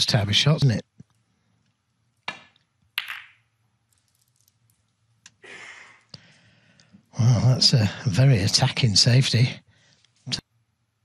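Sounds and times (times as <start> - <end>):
snooker balls clicking together: 2.2 - 4.7
cue tip striking ball: 2.3 - 3.4.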